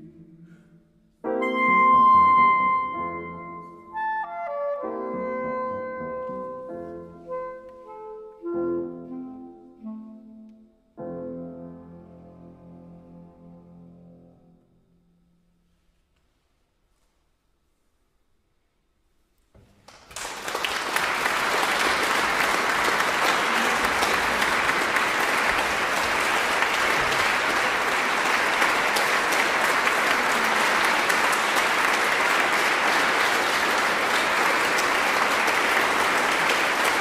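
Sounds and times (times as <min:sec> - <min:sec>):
audience applauding: 0:19.8 - 0:37.0.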